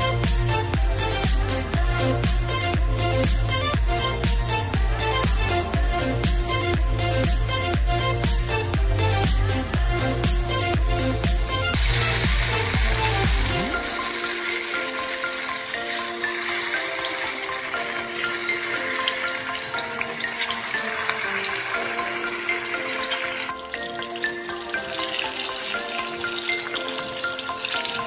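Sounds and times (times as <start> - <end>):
background music: 0.0 - 28.0
meatballs sizzling in hot oil: 11.8 - 28.0.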